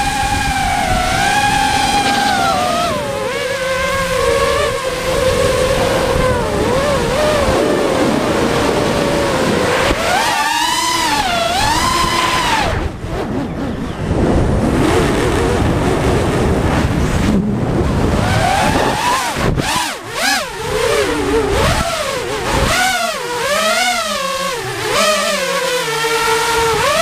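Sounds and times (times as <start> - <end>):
drone propellers whining: 0.0 - 27.0.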